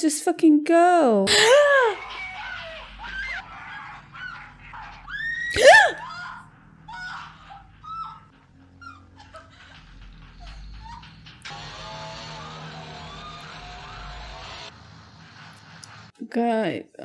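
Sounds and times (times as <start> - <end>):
woman screaming and whimpering: 1.3 - 9.5.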